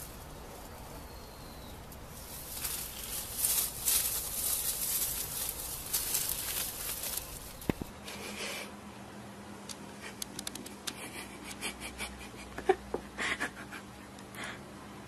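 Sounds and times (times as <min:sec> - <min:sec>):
leaves rustling: 0:00.0 - 0:08.2.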